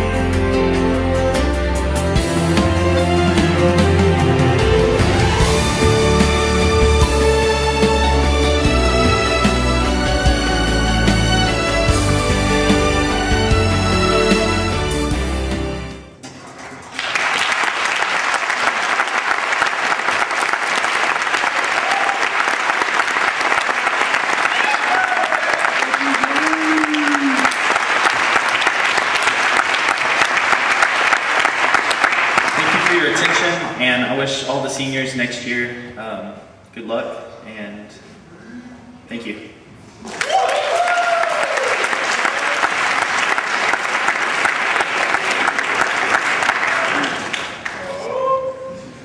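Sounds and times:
audience applauding: 0:16.8 - 0:33.8, 0:40.0 - 0:48.2
long cheer: 0:19.9 - 0:28.5, 0:40.0 - 0:43.8, 0:44.4 - 0:49.0.

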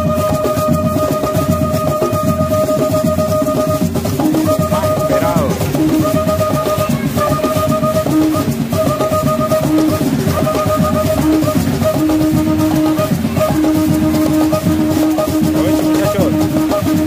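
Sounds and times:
music with drums and held notes: 0:00.0 - 0:17.0.

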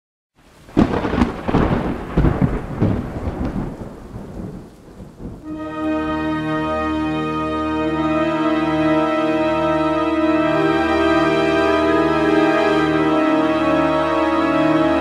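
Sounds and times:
rain: 0:00.4 - 0:15.0
thunder rumbling: 0:00.5 - 0:06.0, 0:10.5 - 0:15.0
sustained music chord: 0:05.4 - 0:15.0.

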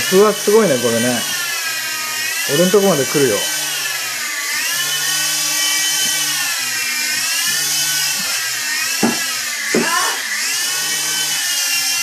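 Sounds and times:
rc helicopter rotor whine: 0:00.0 - 0:12.0
short knocks: 0:09.0 - 0:09.9.

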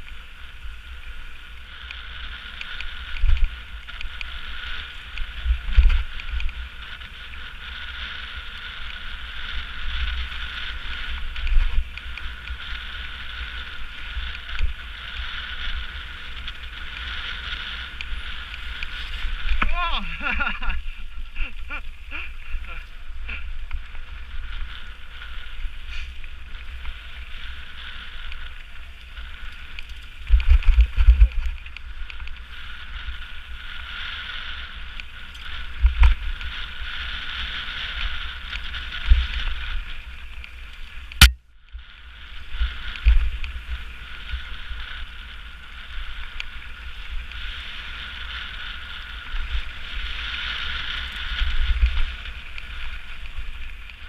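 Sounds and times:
tyres rolling over gravel: 0:00.0 - 0:41.2, 0:42.0 - 0:54.0
bike thumping over bumps: 0:17.9 - 0:19.8.

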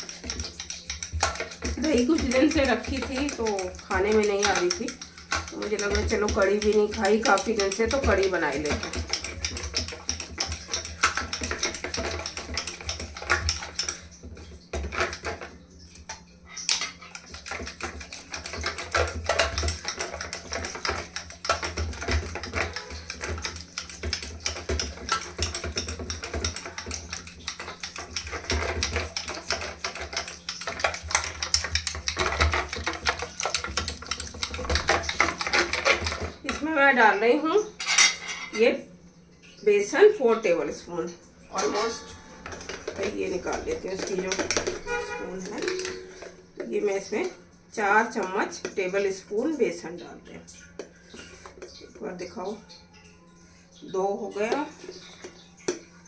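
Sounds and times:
wooden churner clicking against pan: 0:00.0 - 0:36.7, 0:41.6 - 0:47.4.

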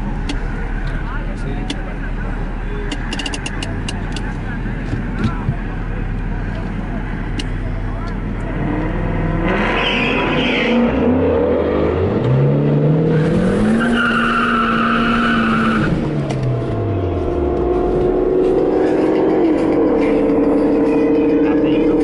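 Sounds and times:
car engine revving: 0:00.0 - 0:22.0
tyre squeal: 0:09.6 - 0:10.9, 0:13.6 - 0:16.0.

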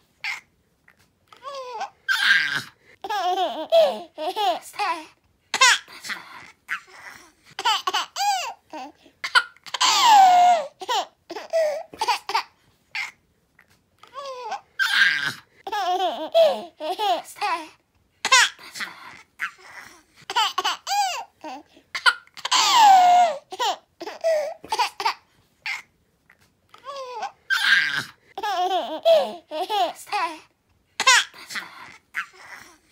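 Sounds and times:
baby giggling: 0:01.4 - 0:13.2, 0:14.1 - 0:17.7, 0:19.4 - 0:25.8, 0:26.8 - 0:30.4.

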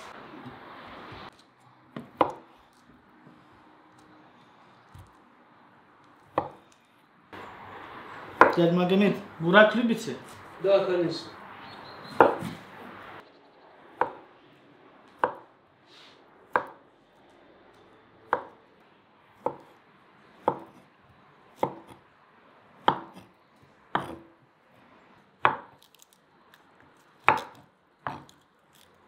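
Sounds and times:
knife cutting on wooden board: 0:23.9 - 0:24.3, 0:27.2 - 0:28.9.

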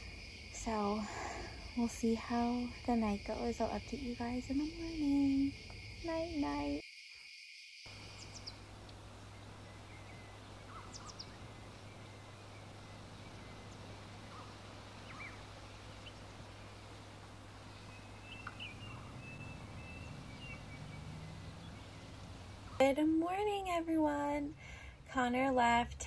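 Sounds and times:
steady low hum: 0:00.0 - 0:06.8, 0:07.9 - 0:26.0
bird chirps: 0:07.9 - 0:22.8.

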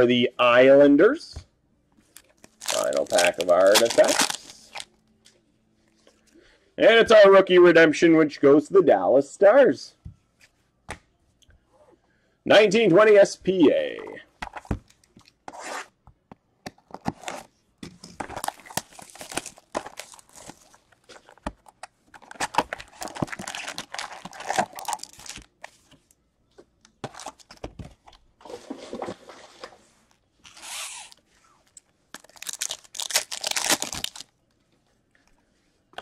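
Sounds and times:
cards being handled: 0:02.1 - 0:04.9
wrappers tearing and crinkling: 0:02.2 - 0:04.9, 0:18.3 - 0:21.4, 0:22.2 - 0:25.5, 0:32.1 - 0:34.3.

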